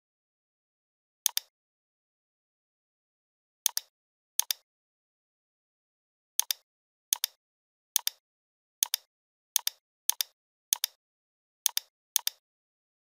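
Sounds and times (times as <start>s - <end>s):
computer mouse button clicking: 1.3s - 1.5s, 11.7s - 12.4s.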